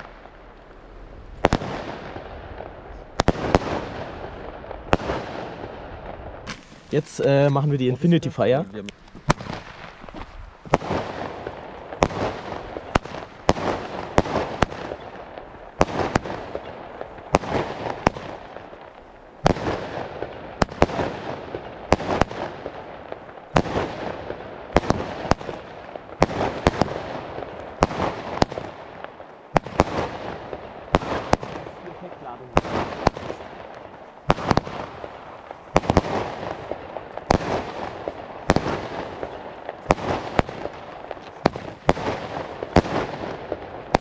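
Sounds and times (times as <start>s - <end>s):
fireworks bangs: 0.0s - 44.0s.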